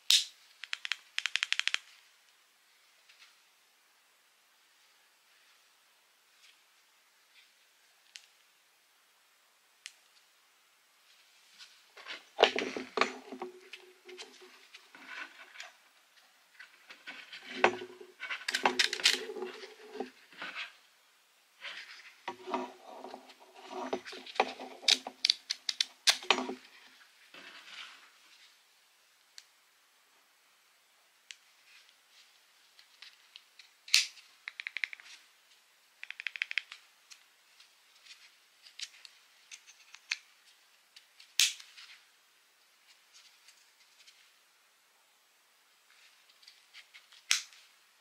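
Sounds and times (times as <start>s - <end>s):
small plastic clicks and snaps: 0.1s - 2.0s, 32.9s - 35.2s, 36.0s - 37.3s, 41.0s - 41.7s, 47.0s - 47.6s
rubbing and rustling: 11.0s - 21.0s, 21.6s - 28.6s.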